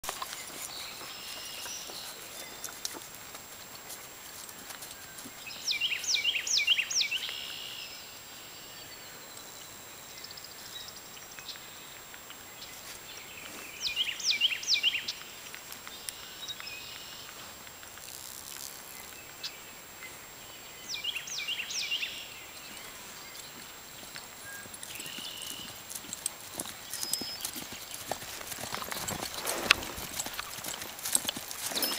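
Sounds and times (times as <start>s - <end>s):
horse hoofbeats on grass: 0.0s - 7.3s, 22.6s - 31.9s.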